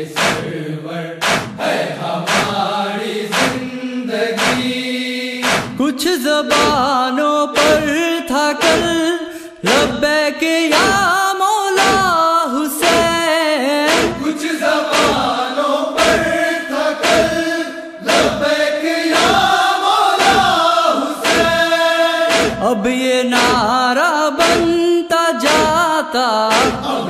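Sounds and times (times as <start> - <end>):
male chorus chanting: 0.0 - 27.0
hands striking chests: 0.2 - 0.5, 1.2 - 1.6, 2.3 - 2.6, 3.3 - 3.6, 4.4 - 4.7, 5.4 - 5.8, 6.5 - 6.9, 7.6 - 8.0, 8.6 - 9.0, 11.8 - 12.1, 12.8 - 13.2, 13.9 - 14.3, 14.9 - 15.3, 16.0 - 16.3, 17.0 - 17.4, 19.1 - 19.4, 20.2 - 20.5, 21.2 - 21.6, 22.3 - 22.6, 23.4 - 23.7, 24.4 - 24.8, 25.5 - 25.8, 26.5 - 26.9.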